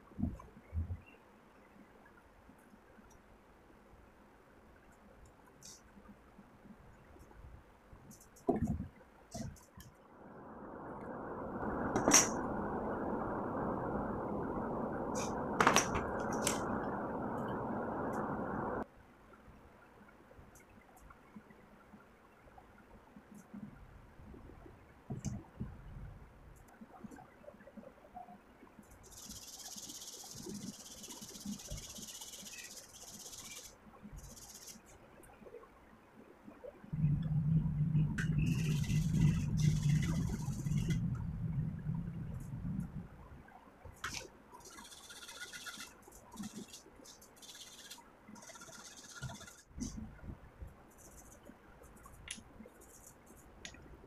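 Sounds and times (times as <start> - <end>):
steady rushing noise: 8.2 - 18.9, 36.9 - 43.5.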